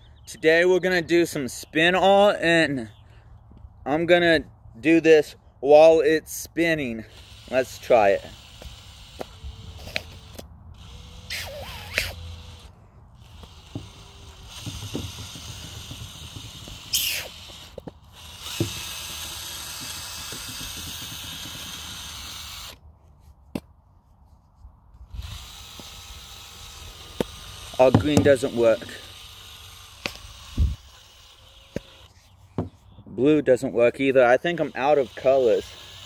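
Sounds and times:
cordless drill spinning: 6.3 - 22.8, 25.0 - 32.7, 34.0 - 36.0
small clicks and knocks: 13.3 - 21.9.

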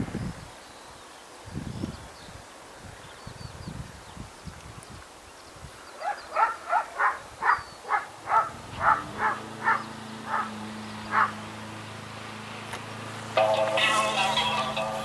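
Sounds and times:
croaking animal calls: 6.0 - 11.4.

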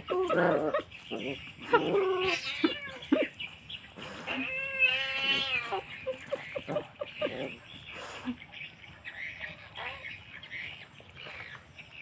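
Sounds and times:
kitten yowling: 2.0 - 3.2.

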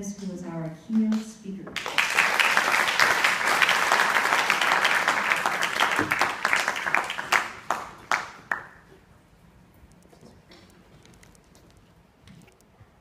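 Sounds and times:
audience applauding: 1.8 - 8.8.

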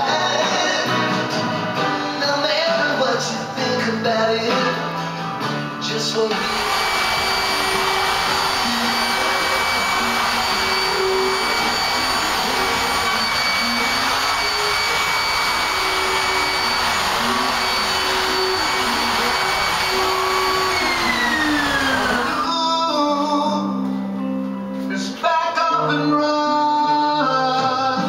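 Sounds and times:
router motor whining: 6.3 - 22.6.

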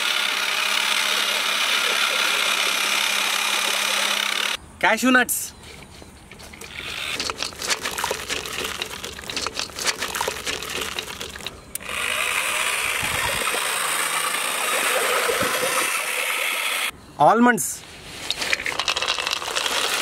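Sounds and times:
drill paddle mixer whirring: 0.0 - 4.6, 6.6 - 16.9
nuts pattering into liquid: 18.3 - 20.0.

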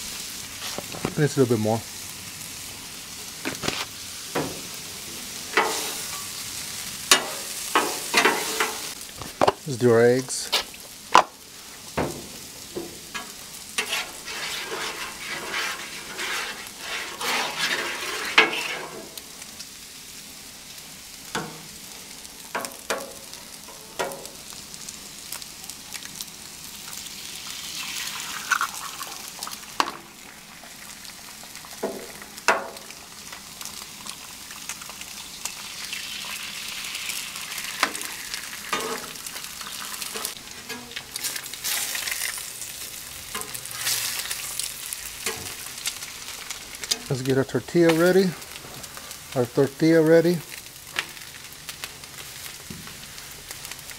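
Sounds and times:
eggs sizzling on griddle: 0.0 - 53.9
spatula scraping on griddle: 3.5 - 6.5, 7.1 - 9.0, 12.0 - 19.2, 37.8 - 47.2.

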